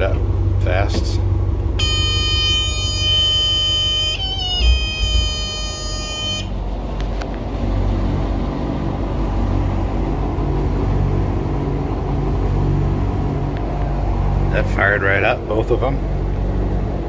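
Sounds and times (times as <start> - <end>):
boat engines idling: 0.0 - 17.0
high-pitched alarm buzzer: 1.8 - 6.6.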